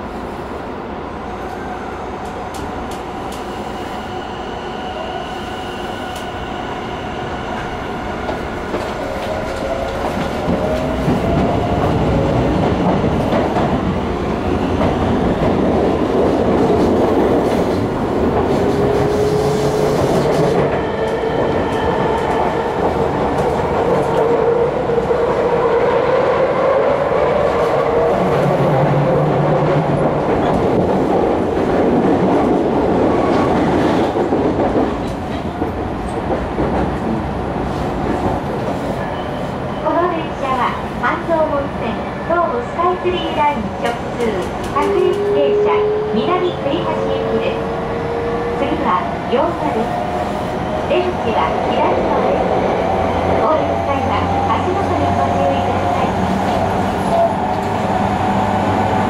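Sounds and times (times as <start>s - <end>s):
wheels rumbling on rail: 5.8s - 59.0s
rail-joint clatter: 43.8s - 45.4s.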